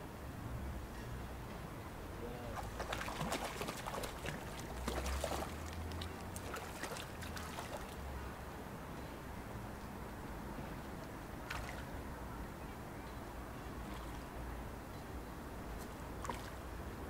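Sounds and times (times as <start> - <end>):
fish splashing at water surface: 2.6 - 8.0.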